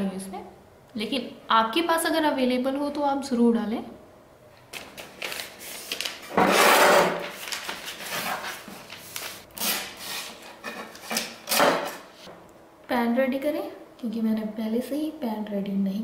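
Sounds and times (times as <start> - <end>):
baking paper rustling: 4.8 - 12.2.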